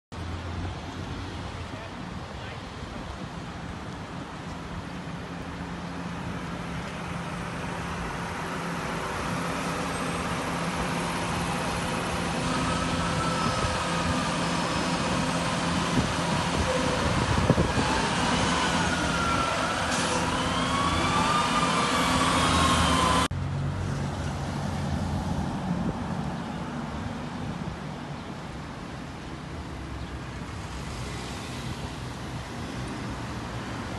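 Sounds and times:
engines and traffic noise: 0.1s - 33.9s
emergency siren wailing: 6.4s - 23.3s.

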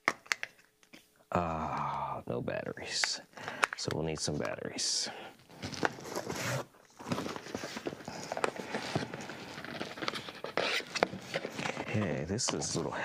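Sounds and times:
cardboard rustling and scraping: 5.6s - 12.9s.

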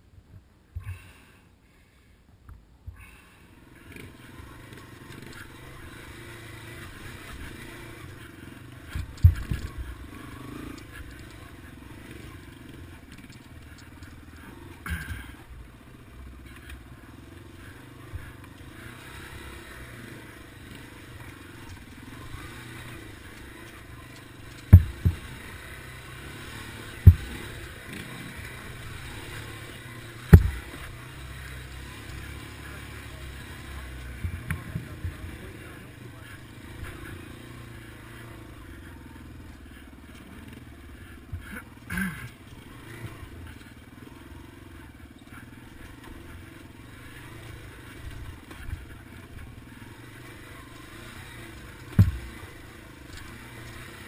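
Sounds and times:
motorcycle engine running: 2.9s - 54.0s
motorcycle thumping over rock: 8.9s - 11.3s, 14.8s - 15.5s, 23.3s - 29.6s, 30.2s - 31.0s, 34.0s - 35.3s, 51.8s - 53.4s.

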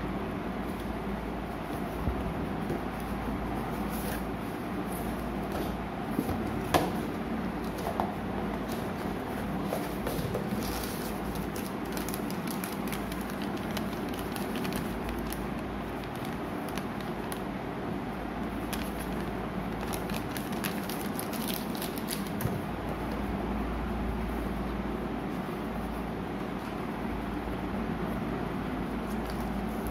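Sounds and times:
low background hum: 0.0s - 29.9s
paper and cardboard crackling: 8.6s - 17.4s, 18.6s - 22.4s.

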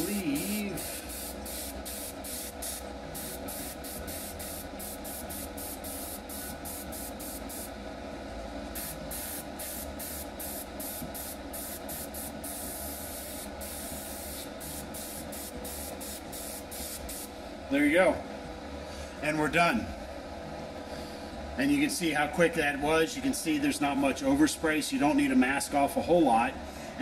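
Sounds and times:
airbrush spraying hiss: 0.0s - 7.7s, 8.8s - 17.3s.

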